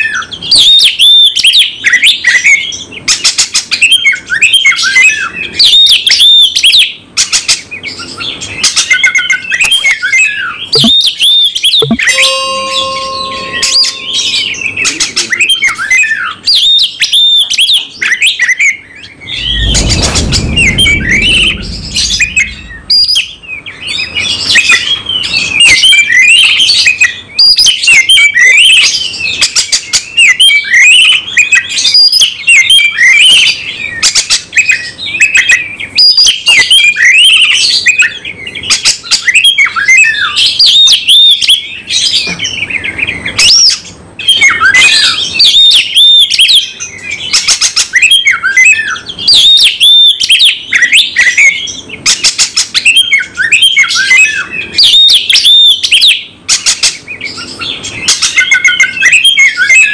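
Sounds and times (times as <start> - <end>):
songbird singing varied whistles: 8.8 - 28.9, 43.4 - 51.7, 52.7 - 56.3, 57.3 - 59.9.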